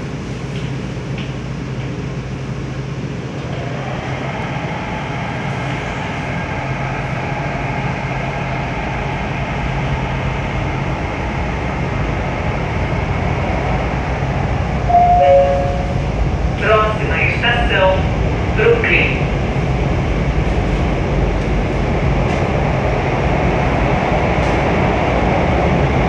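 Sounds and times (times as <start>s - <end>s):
metro train wheels rumbling on rail: 0.0s - 26.0s
low hum: 14.9s - 16.5s.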